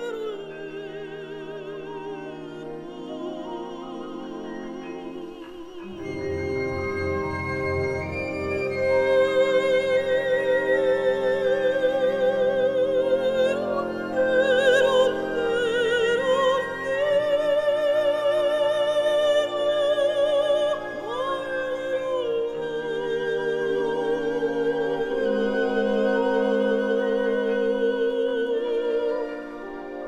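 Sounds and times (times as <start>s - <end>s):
sustained accompaniment chords: 0.0s - 18.3s, 18.9s - 30.0s
operatic voice singing: 9.1s - 30.0s.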